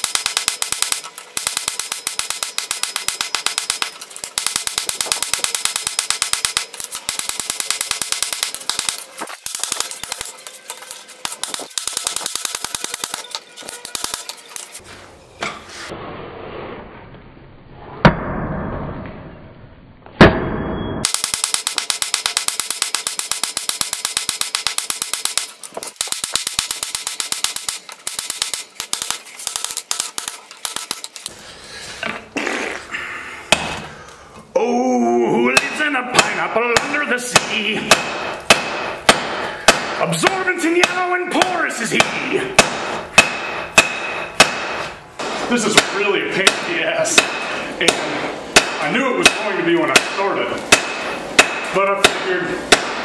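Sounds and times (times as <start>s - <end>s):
anvil ringing: 35.5s - 53.0s
hammer striking steel on anvil: 35.5s - 53.0s.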